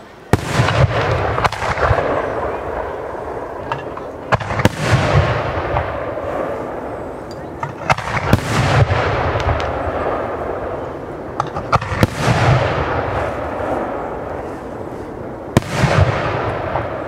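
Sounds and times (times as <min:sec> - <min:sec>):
fireworks bursting: 0:00.0 - 0:17.0
fireworks crackling: 0:00.0 - 0:17.0.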